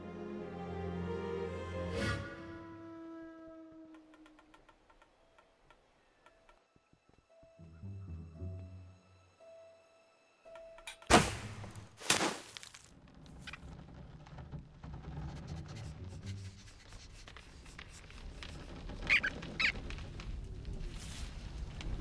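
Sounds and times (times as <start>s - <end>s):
cartoon rodent squeaks: 19.0s - 19.8s.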